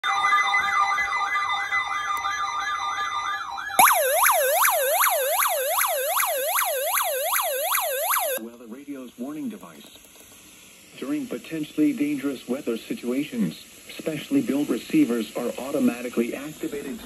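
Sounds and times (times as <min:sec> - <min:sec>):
electronic warbling alert alarm: 0:03.8 - 0:08.4
steady tones: 0:03.8 - 0:08.4.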